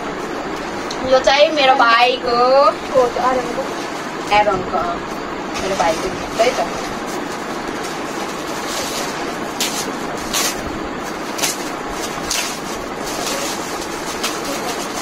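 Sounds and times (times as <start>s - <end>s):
wrapping paper rustling and tearing: 5.6s - 15.0s.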